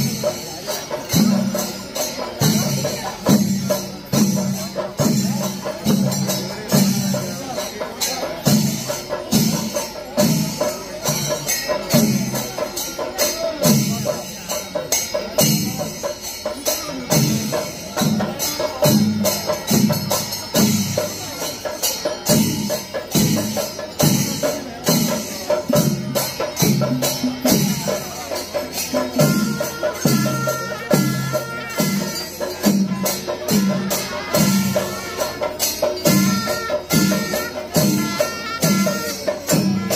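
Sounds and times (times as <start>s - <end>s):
drums struck in steady rhythm: 0.0s - 39.9s
small hand cymbals clashing: 0.0s - 39.9s.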